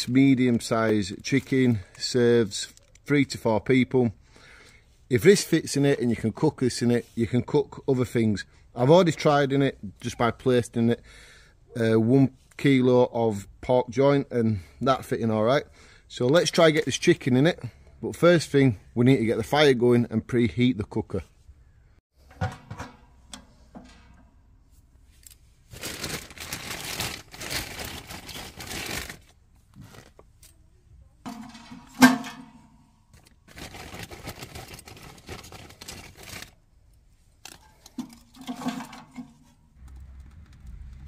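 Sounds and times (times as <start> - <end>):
kindling scraping and rustling: 22.2 - 30.3.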